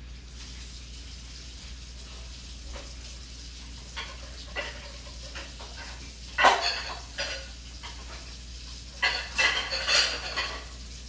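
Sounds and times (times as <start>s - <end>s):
metal cookware clattering: 3.9s - 8.4s, 9.0s - 10.8s.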